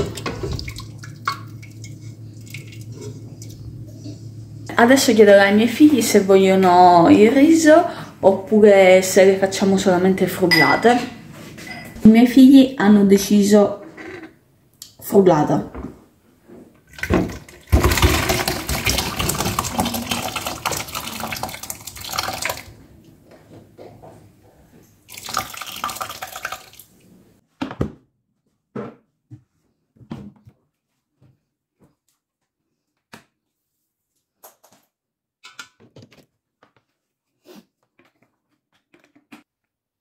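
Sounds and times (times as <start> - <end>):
liquid pouring and splashing: 0.0 - 3.6, 16.9 - 22.8, 25.1 - 27.0.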